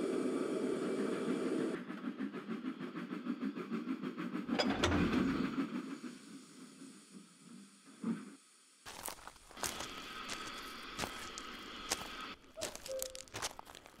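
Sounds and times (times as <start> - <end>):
steam engine chuffing: 0.6 - 7.6
rail clatter: 4.4 - 5.8.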